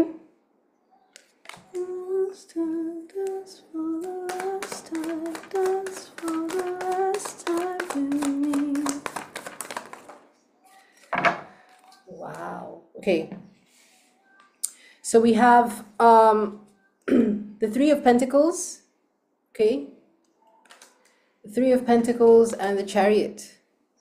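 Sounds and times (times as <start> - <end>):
cards shuffling: 1.2 - 1.9, 4.0 - 10.3, 20.6 - 21.1
woman humming a tune: 1.8 - 5.3.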